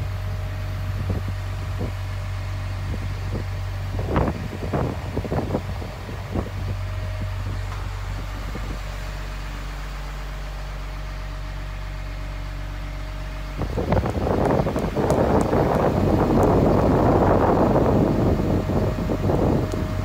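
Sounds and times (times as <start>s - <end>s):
wind noise: 0.0s - 2.1s, 2.7s - 9.3s, 13.5s - 20.0s
diesel truck engine idling: 0.0s - 20.0s.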